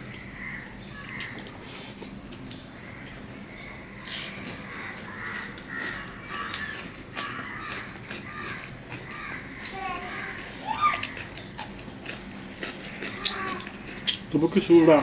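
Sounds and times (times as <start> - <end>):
harsh bird calls: 0.0 - 1.9, 2.6 - 11.7
chewing with mouth smacks: 0.0 - 15.0.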